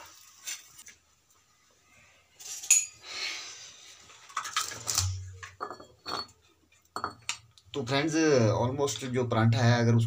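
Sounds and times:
dish clinking: 0:05.0 - 0:06.4
dishes knocking: 0:07.0 - 0:07.4.

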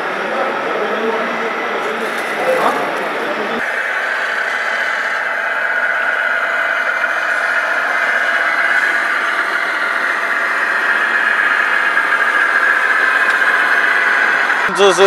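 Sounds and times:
model truck electric motors whining: 0:00.0 - 0:15.0.

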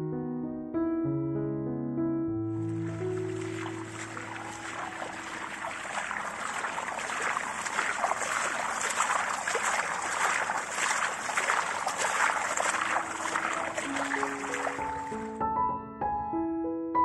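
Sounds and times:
running water splashing: 0:02.6 - 0:15.4.

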